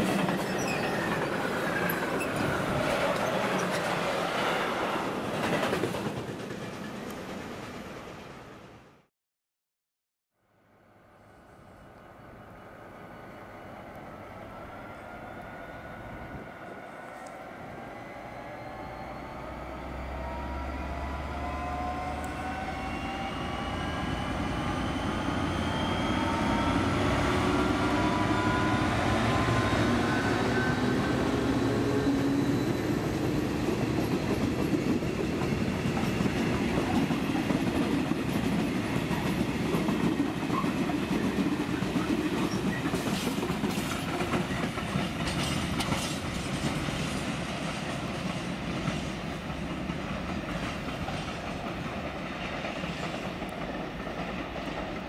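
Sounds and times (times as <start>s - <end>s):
diesel locomotive engine: 0.0s - 9.1s, 11.0s - 55.0s
wheels clacking over rail joints: 32.8s - 55.0s.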